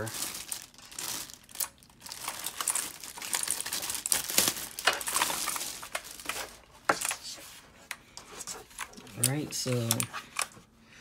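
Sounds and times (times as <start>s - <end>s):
plastic packaging crinkling: 0.0s - 7.4s.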